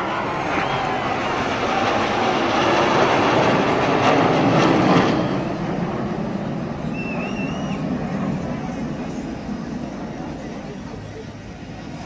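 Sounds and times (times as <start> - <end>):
jets roaring overhead: 0.0 - 12.0
wavering whistle: 0.3 - 1.4, 6.8 - 8.1.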